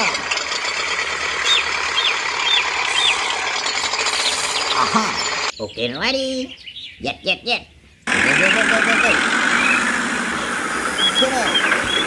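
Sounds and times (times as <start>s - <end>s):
small electric motor running: 0.0s - 5.5s.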